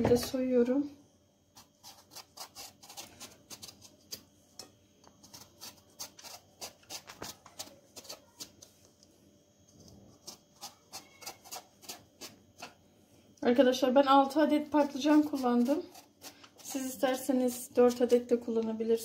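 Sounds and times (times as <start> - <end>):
knife scraping eggplant skin: 1.5 - 8.7, 9.8 - 12.8, 14.7 - 18.6.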